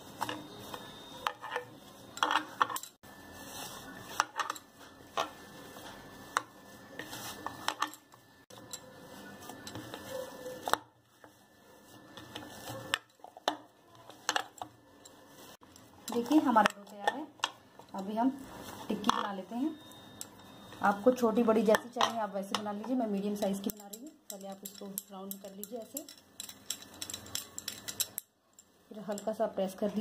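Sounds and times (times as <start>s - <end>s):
hand mashing potatoes: 3.4s - 19.2s.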